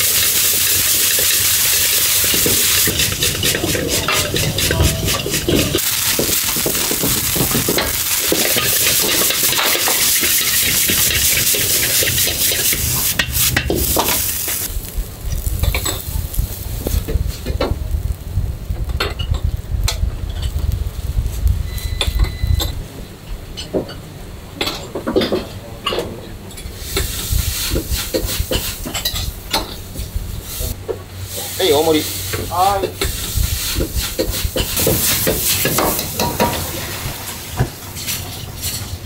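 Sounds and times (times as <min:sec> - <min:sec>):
rice sizzling in a wok: 0:00.0 - 0:23.2, 0:26.6 - 0:39.0
metal ladle scraping wok: 0:00.1 - 0:14.7
low rumble: 0:01.4 - 0:23.4.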